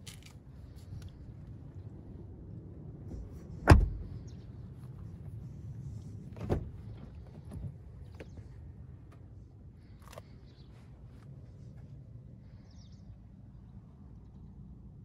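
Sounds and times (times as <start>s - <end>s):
car door shutting thud: 3.6s - 4.1s, 6.4s - 6.8s
car door unlatching clunk: 3.6s - 4.1s, 6.4s - 8.3s.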